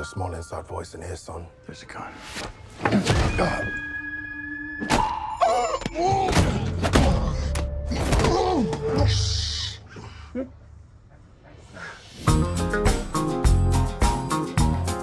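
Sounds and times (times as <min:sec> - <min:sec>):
film score with held tones: 0:00.0 - 0:15.0.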